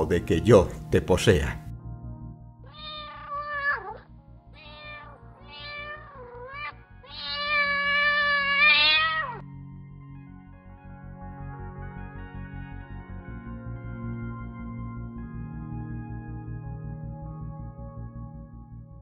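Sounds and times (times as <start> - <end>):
cat meowing: 2.7 - 9.4.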